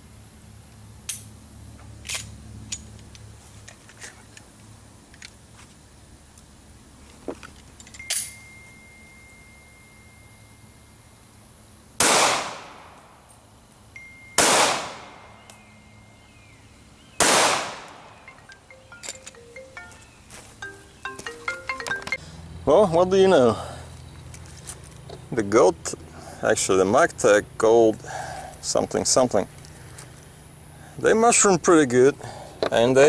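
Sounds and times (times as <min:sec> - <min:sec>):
pistol shots: 0:12.0 - 0:13.0, 0:14.4 - 0:15.2, 0:17.2 - 0:18.2.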